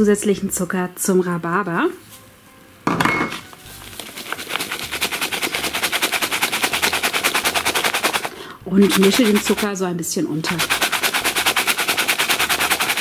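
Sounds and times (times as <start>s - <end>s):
bowl clattering: 2.9s - 4.6s
rhubarb rattling in plastic bowl: 3.7s - 9.8s, 10.4s - 13.0s.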